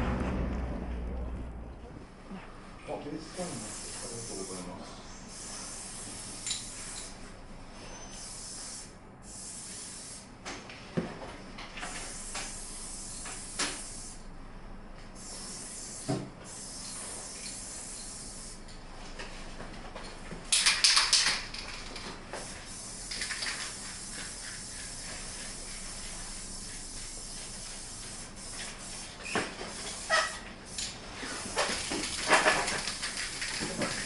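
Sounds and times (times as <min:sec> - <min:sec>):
spray paint can hissing: 0:03.6 - 0:04.5, 0:05.3 - 0:07.2, 0:08.2 - 0:10.3, 0:12.0 - 0:14.2, 0:15.2 - 0:18.6, 0:20.5 - 0:34.0.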